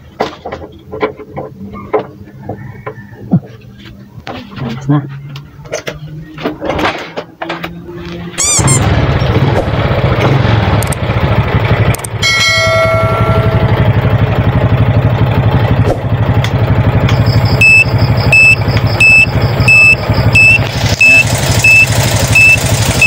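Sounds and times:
motorcycle engine idling: 0:08.6 - 0:23.0
short ringing chime: 0:12.2 - 0:13.7
turn-signal buzzer beeping: 0:17.1 - 0:23.0.

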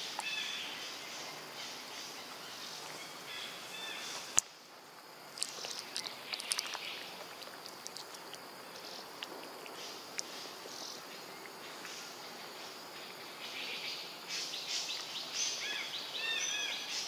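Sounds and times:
high insect hum: 0:00.0 - 0:17.0.

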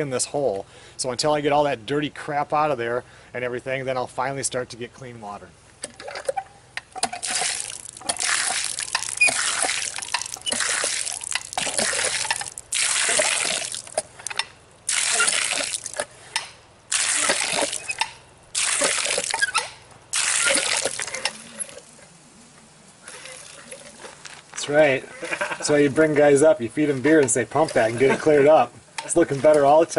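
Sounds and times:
hand pump handle strokes: 0:05.9 - 0:21.8
water gushing and splashing: 0:07.0 - 0:16.1, 0:16.8 - 0:22.0, 0:23.1 - 0:24.1.

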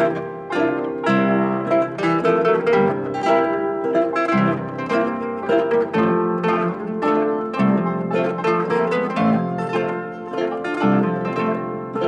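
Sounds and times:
plucked string instrument melody: 0:00.0 - 0:12.0.

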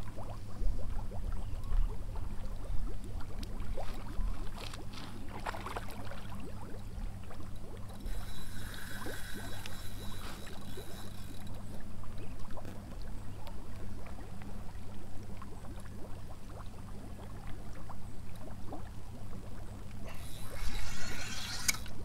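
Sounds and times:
lake water lapping: 0:00.0 - 0:13.0
steady low hum: 0:00.0 - 0:22.0
small splashes: 0:01.2 - 0:13.0.

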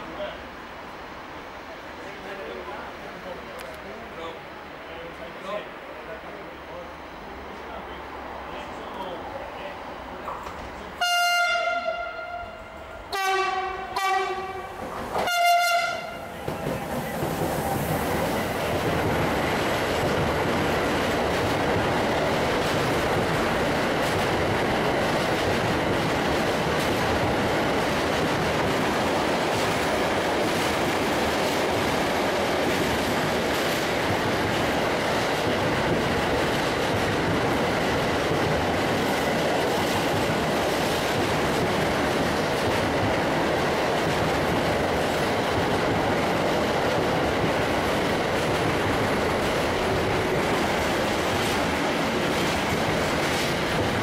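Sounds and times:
train wheels on rails: 0:00.0 - 0:11.0, 0:11.6 - 0:54.0
locomotive horn: 0:11.0 - 0:16.3.

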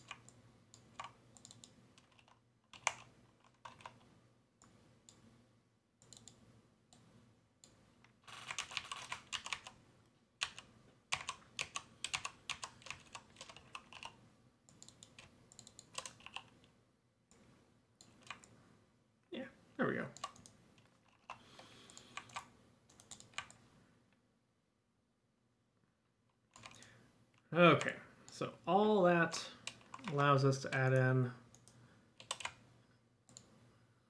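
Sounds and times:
computer keyboard clicking: 0:00.0 - 0:04.0, 0:07.6 - 0:09.8, 0:10.4 - 0:16.5, 0:18.0 - 0:18.5, 0:20.2 - 0:23.6, 0:26.5 - 0:26.9, 0:29.6 - 0:30.8, 0:31.5 - 0:32.6.

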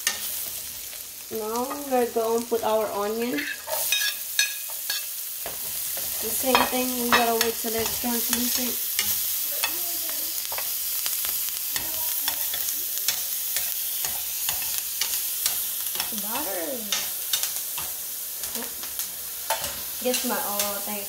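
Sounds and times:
onion and garlic sizzling in butter: 0:00.0 - 0:21.0
spatula scraping a pan: 0:03.3 - 0:09.8.

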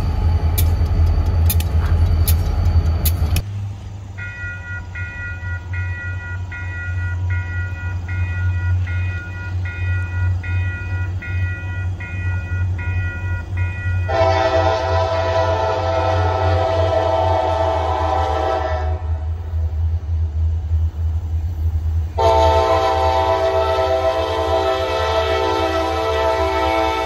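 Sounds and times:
diesel locomotive running: 0:00.0 - 0:27.0
sharp clicks: 0:00.4 - 0:03.5
grade crossing bell ringing: 0:04.2 - 0:14.2
train horn: 0:13.8 - 0:19.4, 0:22.2 - 0:27.0.

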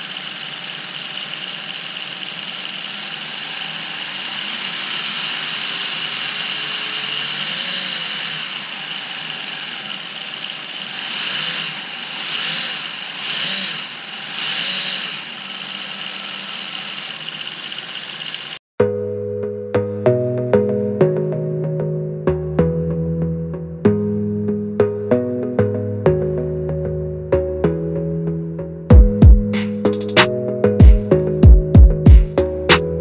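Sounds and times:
model engine whirring whine: 0:00.0 - 0:18.6.

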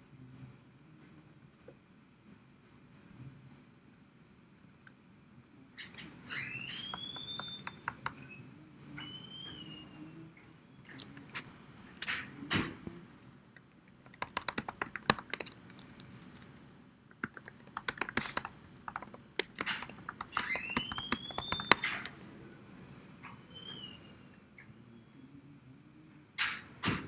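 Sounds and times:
keyboard typing: 0:05.9 - 0:08.3, 0:13.4 - 0:22.2
short rising squeak: 0:06.0 - 0:10.2.

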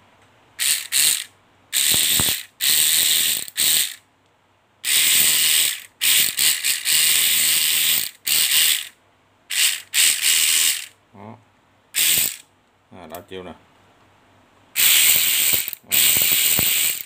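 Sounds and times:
electric ratchet wrench whirring: 0:00.6 - 0:04.0, 0:04.8 - 0:11.0, 0:12.0 - 0:12.4, 0:14.8 - 0:17.0.

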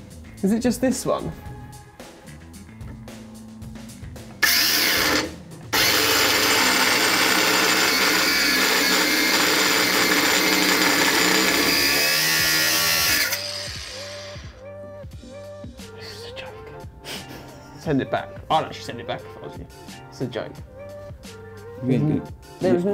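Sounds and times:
angle grinder cutting steel: 0:04.4 - 0:14.6.

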